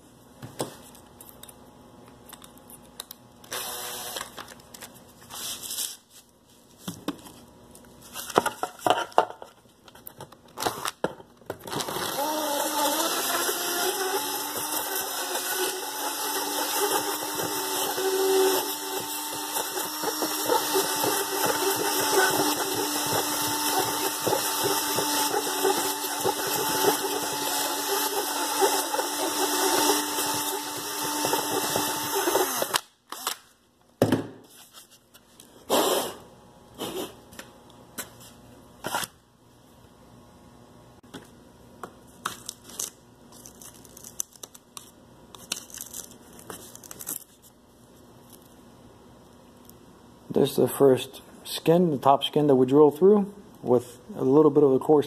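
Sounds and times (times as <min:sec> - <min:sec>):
hand drill running: 0:03.5 - 0:04.2, 0:11.8 - 0:33.3.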